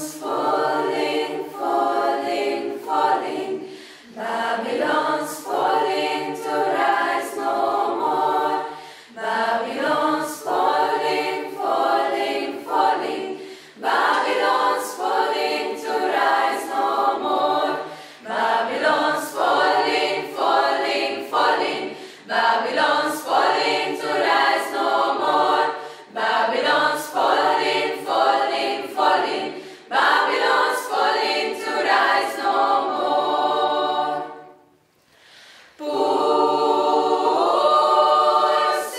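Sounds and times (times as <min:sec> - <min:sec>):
choir singing a cappella: 0:00.0 - 0:38.9
singers breathing: 0:03.6 - 0:04.2, 0:08.6 - 0:09.3, 0:13.3 - 0:13.8, 0:17.8 - 0:18.3, 0:21.8 - 0:22.4, 0:25.7 - 0:26.2, 0:29.5 - 0:29.9, 0:35.0 - 0:35.8.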